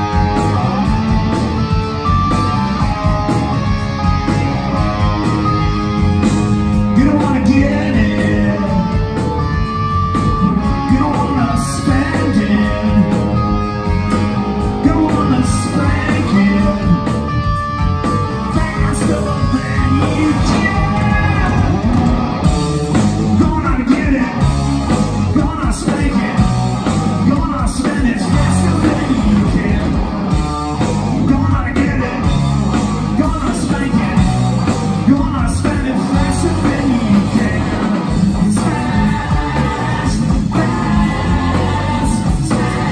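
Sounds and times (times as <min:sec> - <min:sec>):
drum kit: 0:00.0 - 0:42.9
electric guitars: 0:00.0 - 0:42.9
person singing: 0:06.8 - 0:09.4, 0:10.4 - 0:13.6, 0:14.6 - 0:17.2, 0:18.4 - 0:21.9, 0:35.1 - 0:42.9.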